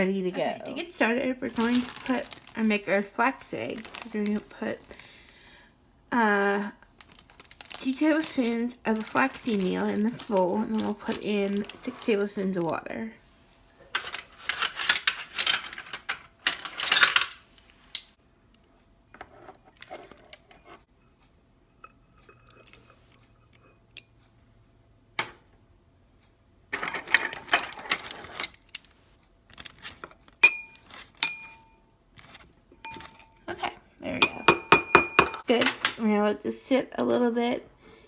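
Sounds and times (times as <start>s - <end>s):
ringing clinks: 30.4s - 31.8s.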